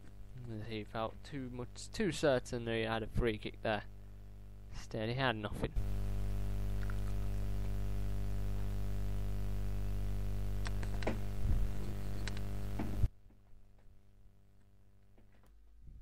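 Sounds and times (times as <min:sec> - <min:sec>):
electrical mains hum: 0:00.0 - 0:16.0
faint clicks: 0:10.6 - 0:11.1, 0:11.8 - 0:12.6.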